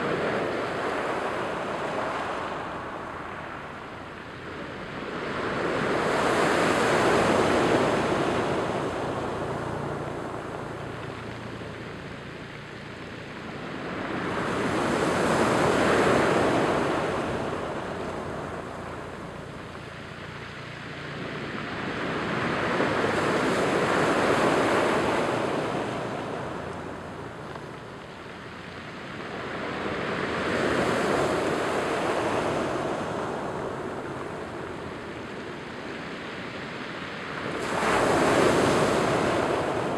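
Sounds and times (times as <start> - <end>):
surf breaking on cobble beach: 37.2 - 39.9.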